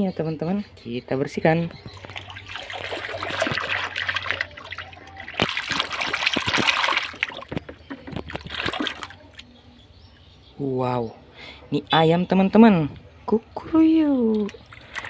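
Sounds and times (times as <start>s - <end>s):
water splashing in plastic basin: 1.8s - 9.6s.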